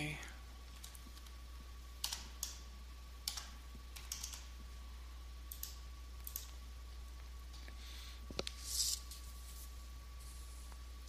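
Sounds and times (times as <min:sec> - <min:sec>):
faint electrical hum: 0:00.0 - 0:11.0
keyboard keystrokes: 0:03.3 - 0:04.5.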